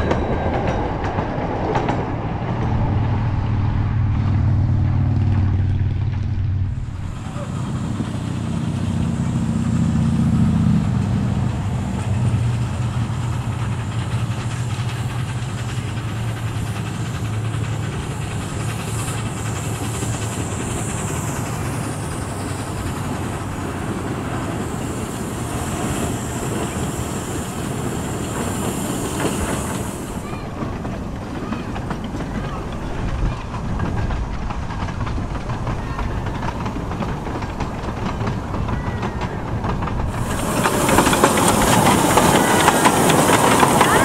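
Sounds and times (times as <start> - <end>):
low hum: 0.0 - 11.6
steam locomotive chuffing: 0.0 - 44.0
wheels running on rails: 0.0 - 44.0.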